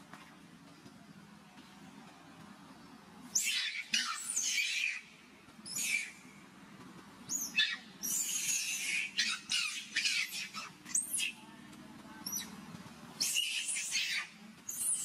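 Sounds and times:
monkey screaming shrilly: 3.3s - 5.0s, 7.3s - 11.4s, 13.2s - 15.0s.

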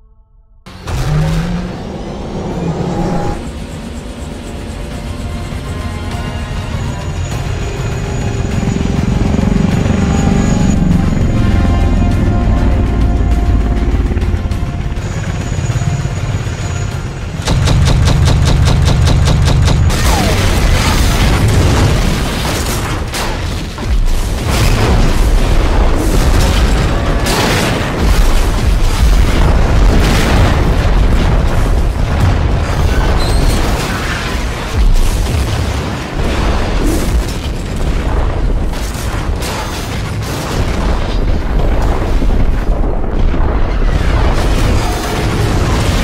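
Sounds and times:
heavy low rumble: 0.0s - 22.4s
background music: 4.3s - 20.3s
explosions and booms: 17.3s - 46.0s.

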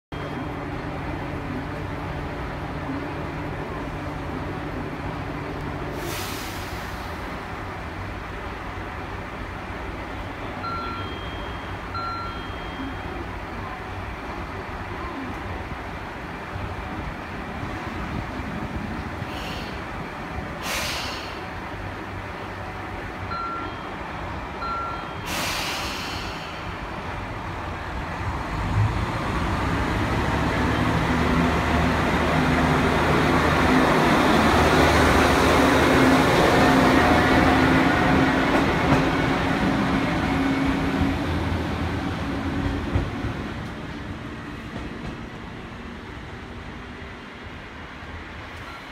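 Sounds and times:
diesel railcar engine and running noise: 0.1s - 48.9s
short hisses: 20.6s - 21.4s, 25.3s - 26.7s.

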